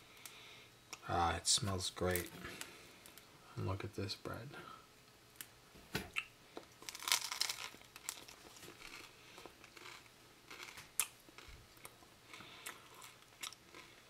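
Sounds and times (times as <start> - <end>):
chewing: 6.2 - 14.0
bread crust crunching: 6.6 - 14.0.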